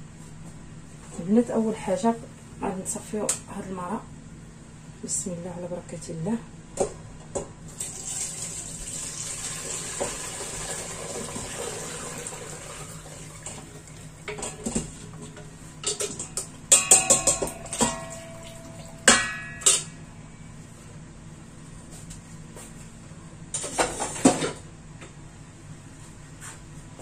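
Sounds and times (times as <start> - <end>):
liquid pouring and splashing: 7.7 - 14.2
metal clanks with ringing: 15.9 - 20.2.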